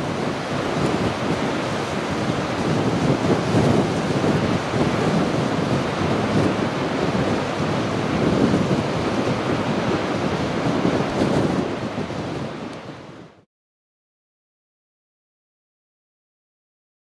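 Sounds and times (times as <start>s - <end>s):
crashing waves and swirling water: 0.0s - 13.5s.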